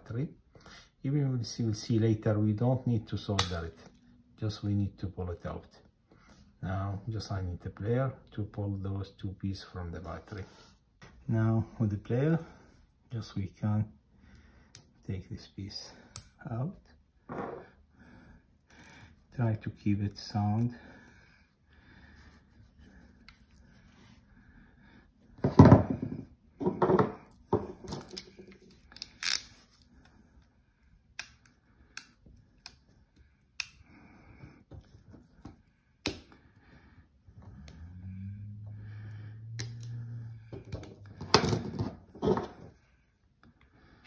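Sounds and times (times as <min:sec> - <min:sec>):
low hum: 0:37.3 - 0:41.7.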